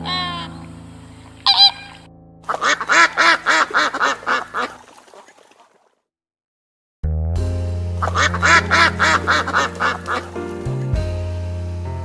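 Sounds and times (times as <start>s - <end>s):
soft piano music: 0.0s - 4.6s, 7.4s - 12.0s
flamingos calling: 0.0s - 4.8s, 8.0s - 10.4s.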